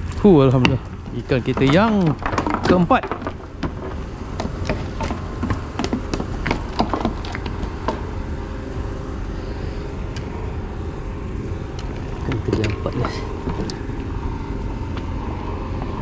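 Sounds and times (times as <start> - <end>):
knocks on wooden deck: 1.5 - 8.0.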